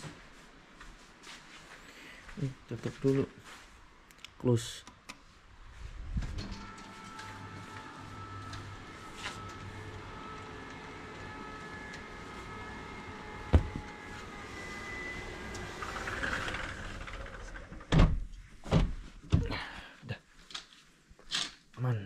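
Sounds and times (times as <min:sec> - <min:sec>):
curtain fabric rustling: 0:05.2 - 0:14.9
sliding door thump: 0:13.4 - 0:14.0
heavy knocks: 0:13.5 - 0:13.9.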